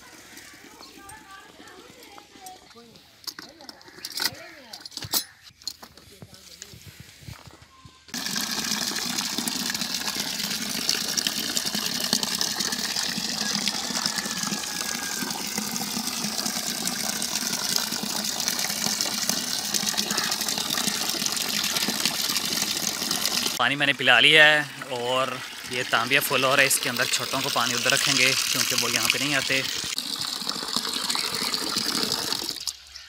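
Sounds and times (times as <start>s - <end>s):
water gushing into a tub: 8.1s - 32.8s.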